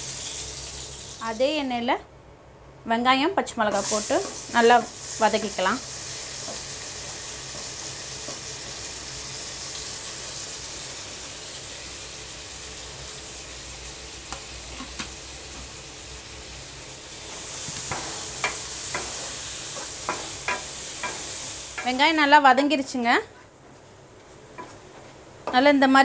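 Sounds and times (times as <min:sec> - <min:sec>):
onions sizzling in hot oil: 0:00.0 - 0:01.7, 0:03.7 - 0:23.0
spatula knocking against pan: 0:17.9 - 0:19.2, 0:19.8 - 0:21.2.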